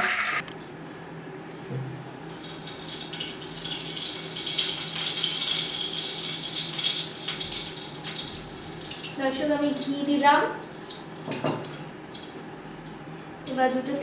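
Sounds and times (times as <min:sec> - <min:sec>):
ghee sizzling in a frying pan: 0:02.3 - 0:11.3.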